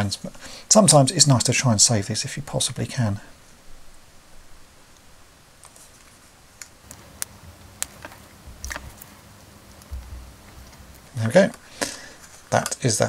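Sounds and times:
soft handling bumps: 0:07.0 - 0:11.6.

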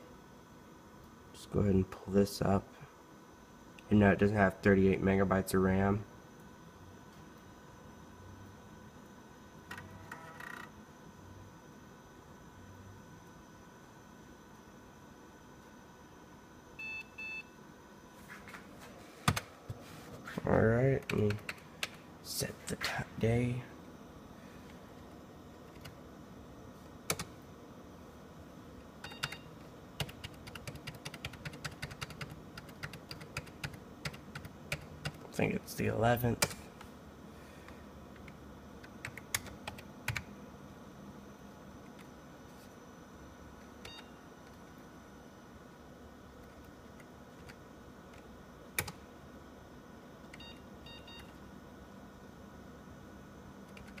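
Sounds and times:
computer hum: 0:00.0 - 0:54.0
keyboard keypresses: 0:27.1 - 0:27.3, 0:46.4 - 0:49.0, 0:53.7 - 0:54.0
computer keyboard tapping: 0:30.0 - 0:35.2, 0:48.8 - 0:49.0, 0:53.7 - 0:54.0.

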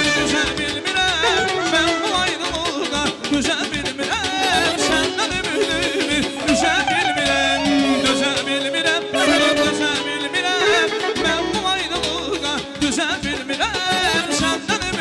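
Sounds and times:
accordion: 0:00.0 - 0:15.0
man singing into a microphone: 0:00.0 - 0:15.0.

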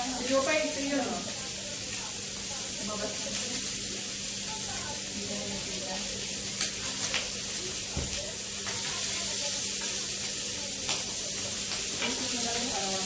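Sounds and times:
meat sizzling on a grill: 0:00.0 - 0:13.0
metal tongs clicking on grill: 0:09.8 - 0:12.7.

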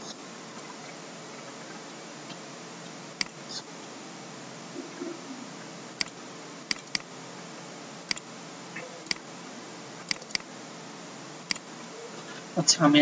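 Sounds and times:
microphone hiss: 0:00.0 - 0:13.0
mouse button clicking: 0:06.7 - 0:07.0, 0:10.1 - 0:10.4.

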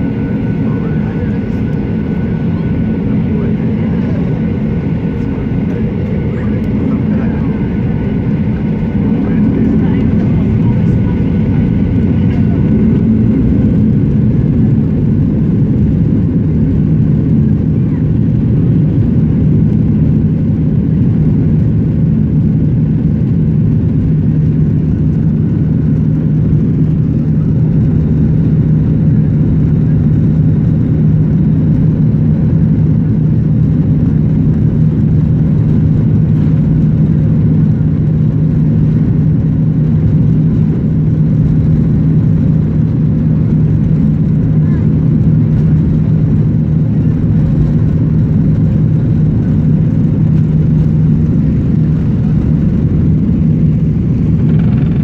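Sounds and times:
airplane cabin engine rumble: 0:00.0 - 0:55.0.

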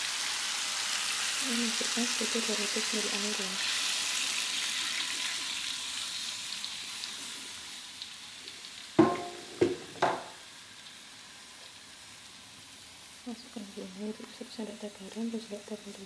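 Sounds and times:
spice paste sizzling in a pan: 0:00.0 - 0:16.0
ringing metallic knocks: 0:09.0 - 0:10.2.

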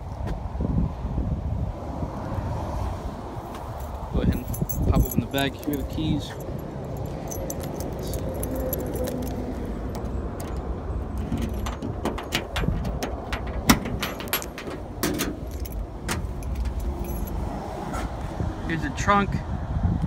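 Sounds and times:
car keys jangling: 0:03.7 - 0:17.5
trunk lock clicks: 0:08.8 - 0:17.0.

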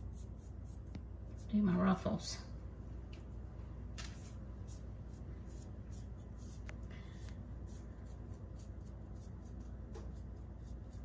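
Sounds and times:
steady low hum: 0:00.0 - 0:11.0
pastry brush swishing: 0:04.0 - 0:11.0.

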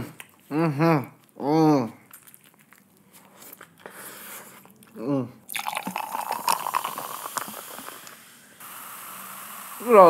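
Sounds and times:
chewing crunchy food: 0:00.1 - 0:01.4, 0:02.0 - 0:08.1
soda poured over ice fizzing: 0:05.5 - 0:08.2.

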